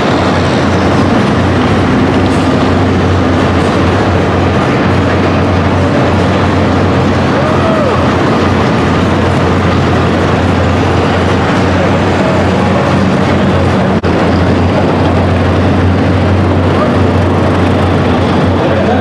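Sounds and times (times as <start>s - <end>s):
pulling truck engines: 0.0s - 19.0s.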